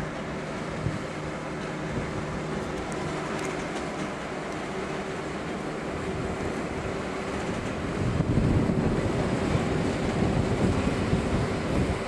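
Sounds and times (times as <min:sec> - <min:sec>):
diesel locomotive engines running: 0:00.0 - 0:12.0
wheels rumbling on rail: 0:00.0 - 0:12.0
wind on microphone: 0:06.0 - 0:12.0.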